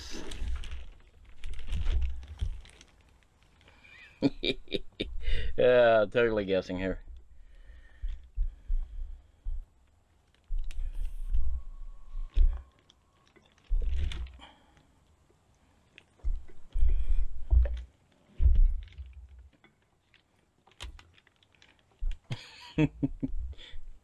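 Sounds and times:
dull low thumps: 7.0 - 9.8, 10.5 - 12.6, 16.2 - 17.8, 18.4 - 19.4.

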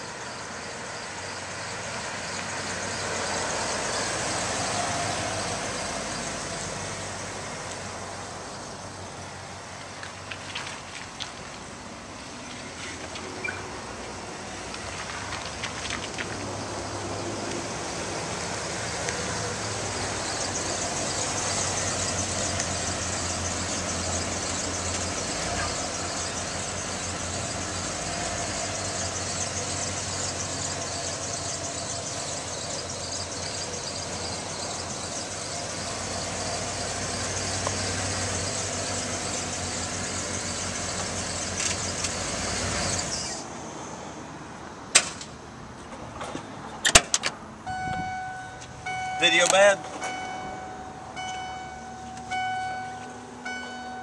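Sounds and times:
truck engine idling: 17.6 - 43.2, 47.5 - 54.0.

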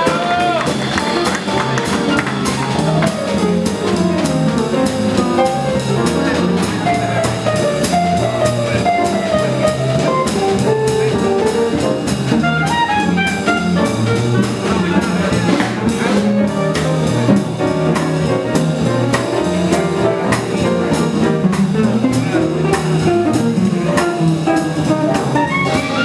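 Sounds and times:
archtop guitar: 0.0 - 26.0
double bass: 0.0 - 26.0
piano: 0.0 - 26.0
clarinet melody: 2.7 - 14.9, 19.4 - 26.0.

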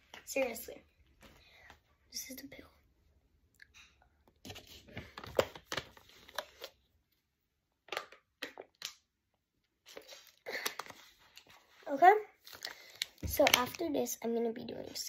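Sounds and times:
plastic bottle crinkling: 4.4 - 6.8, 7.8 - 9.1, 9.8 - 11.8, 12.4 - 13.8.

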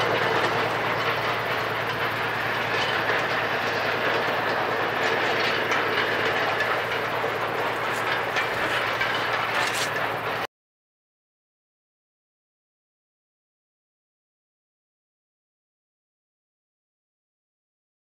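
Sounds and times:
train rumble and rattle: 0.0 - 10.5.

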